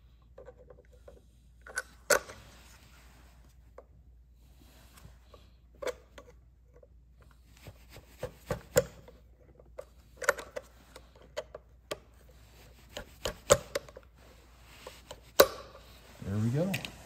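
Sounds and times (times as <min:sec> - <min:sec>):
metal clicks taps and scrapes: 0:08.4 - 0:12.3, 0:12.9 - 0:14.1.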